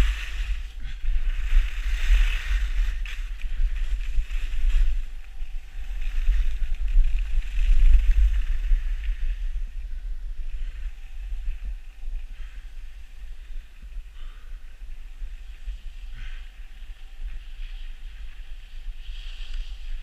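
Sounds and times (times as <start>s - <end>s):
skis sliding on snow: 0.0s - 9.8s, 15.3s - 20.0s
wind buffeting microphone: 0.0s - 20.0s.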